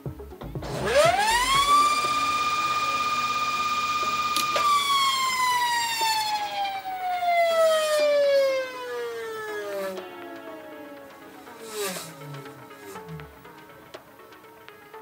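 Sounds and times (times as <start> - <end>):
rc helicopter motor whining: 0.7 - 13.4
motor switch click: 1.0 - 6.6.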